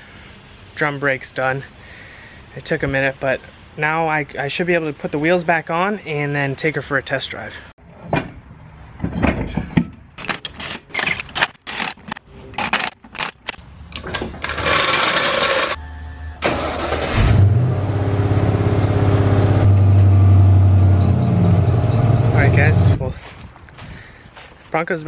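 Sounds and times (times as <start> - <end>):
engine cranking and starting: 10.2 - 15.8, 16.4 - 19.8.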